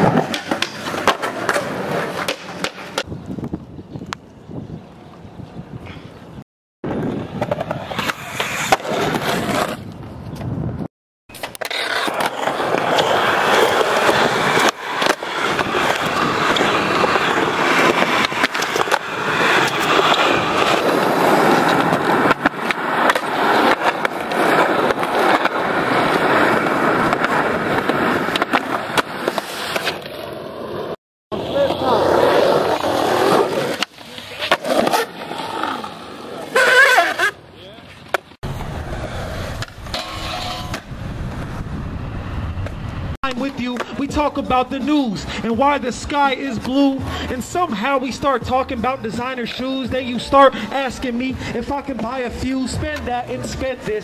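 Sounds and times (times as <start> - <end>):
skateboard clacks: 0.0 - 3.1, 11.4 - 30.1
skateboard wheels rolling on concrete: 0.0 - 54.0
skateboard grinding on edge: 6.9 - 10.6, 11.3 - 54.0.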